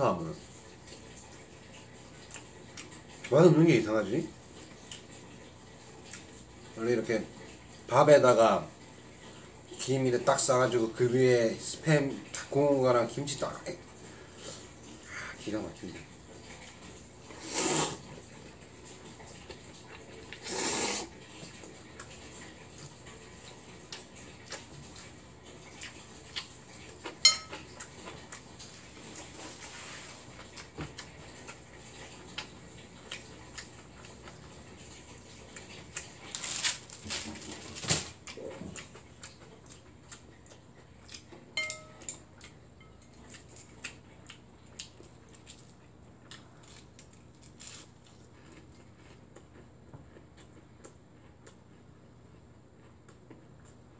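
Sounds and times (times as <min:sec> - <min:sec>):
person slurping noodles: 0:17.4 - 0:18.1, 0:20.4 - 0:21.2
chopsticks clicking on ceramic bowl: 0:41.6 - 0:42.2.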